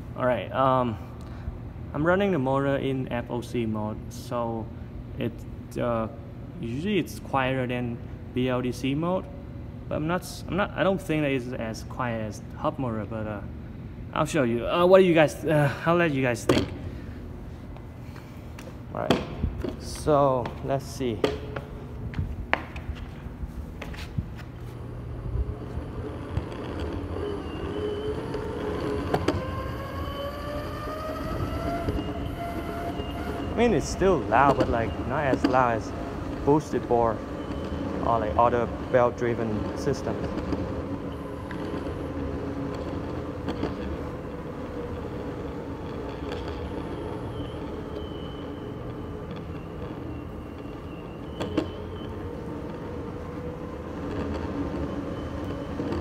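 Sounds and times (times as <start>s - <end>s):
wheels rolling on concrete: 14.4s - 56.0s
electric motors whining: 23.4s - 56.0s.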